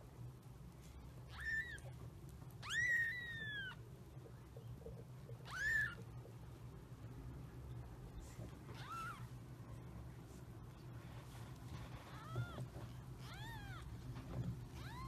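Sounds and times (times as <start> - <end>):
kittens mewing: 5.3 - 6.1, 8.7 - 9.4.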